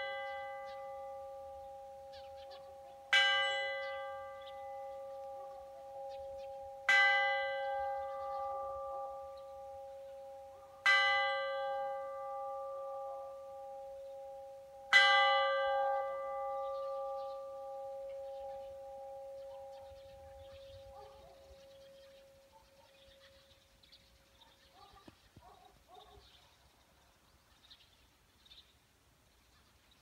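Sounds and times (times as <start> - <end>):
church bell ringing: 0.0 - 23.3.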